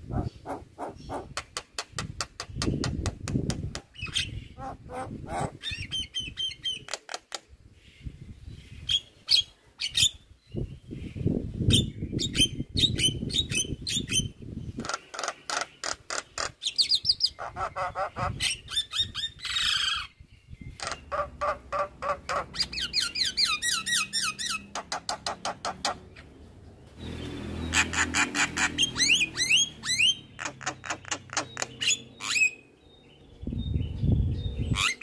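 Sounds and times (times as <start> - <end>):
bird calling with clicks and whistles: 27.8 - 32.6.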